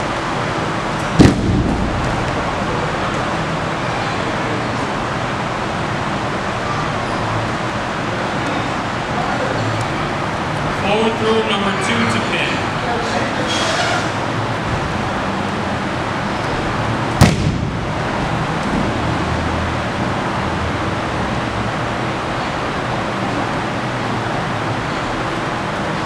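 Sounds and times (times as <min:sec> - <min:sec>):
room noise: 0:00.0 - 0:26.0
body slapping onto mat: 0:01.2 - 0:02.2, 0:17.2 - 0:17.8.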